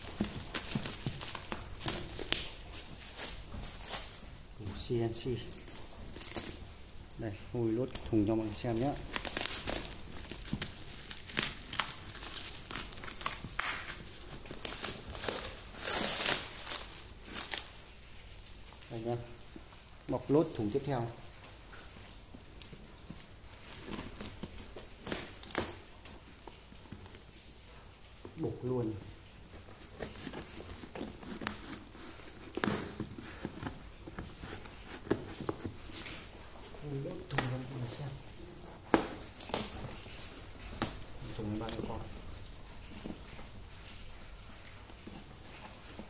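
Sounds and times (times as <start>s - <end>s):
scissors cutting plastic wrap: 0.0s - 17.8s, 29.8s - 38.1s, 38.8s - 42.3s
plastic wrap ripping: 0.0s - 21.3s, 23.0s - 27.4s, 28.4s - 46.0s
plastic wrap crinkling: 0.0s - 46.0s.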